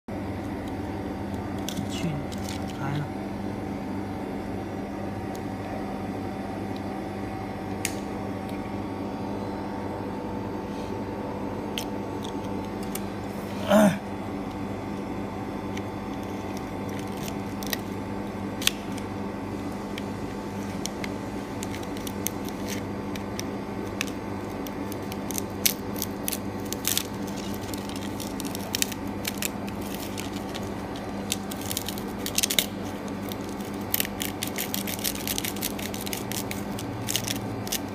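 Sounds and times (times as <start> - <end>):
machine humming: 0.1 - 37.9
small clicks and crackles: 15.7 - 17.9, 20.7 - 37.9.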